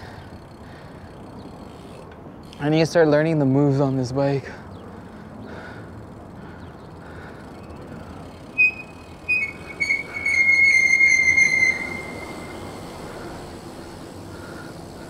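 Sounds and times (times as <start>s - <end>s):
bicycle squealing: 5.5s - 15.0s.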